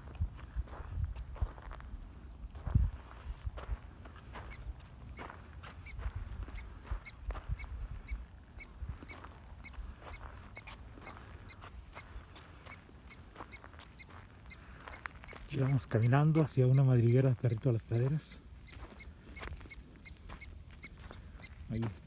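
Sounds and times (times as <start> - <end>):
low wind rumble: 0.0 - 13.4.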